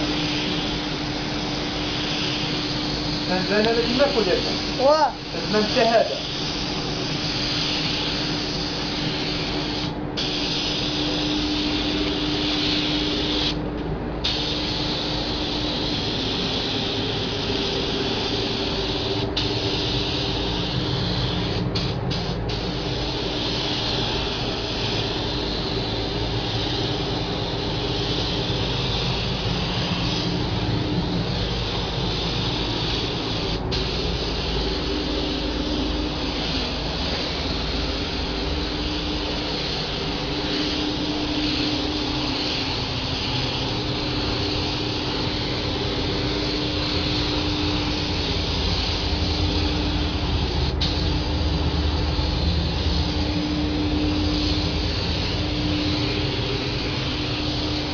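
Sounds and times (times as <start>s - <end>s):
paint spray gun hissing: 0.0s - 13.6s, 14.2s - 57.9s
ventilation rumble: 0.0s - 57.9s
low hum: 33.3s - 57.9s.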